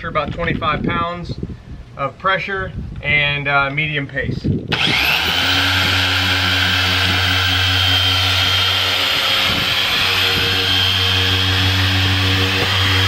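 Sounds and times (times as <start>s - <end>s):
orbital polisher humming and whining: 4.7s - 13.0s.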